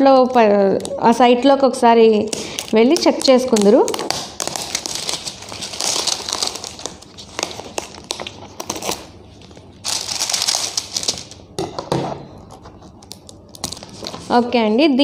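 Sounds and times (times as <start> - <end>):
plastic and paper rustling: 2.3 - 11.4, 12.4 - 14.9.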